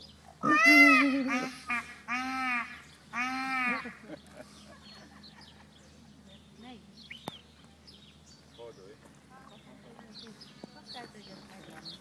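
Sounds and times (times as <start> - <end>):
peacock calling: 0.0 - 5.7.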